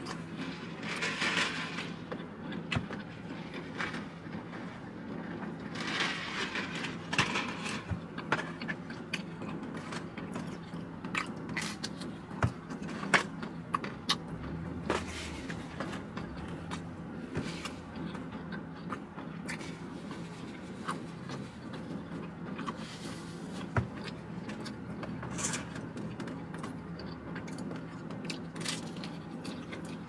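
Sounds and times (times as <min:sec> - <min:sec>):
chewing crispy pizza: 0:00.0 - 0:30.0
steady low hum: 0:00.0 - 0:30.0.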